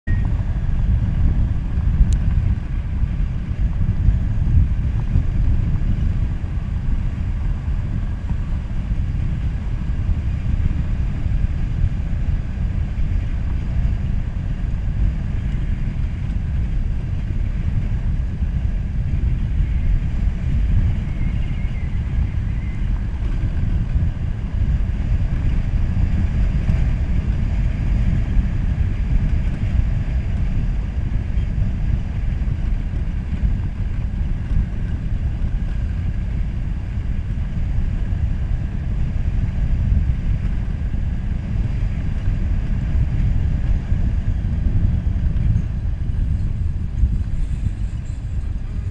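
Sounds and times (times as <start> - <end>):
dirt bike engine rumble: 0.0 - 48.9
wind buffeting microphone: 0.0 - 48.9.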